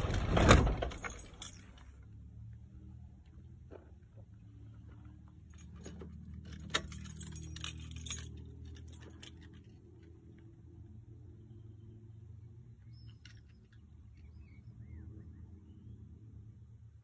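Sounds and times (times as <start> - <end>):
metallic clinks and jingles: 0.9 - 2.1, 5.0 - 10.1.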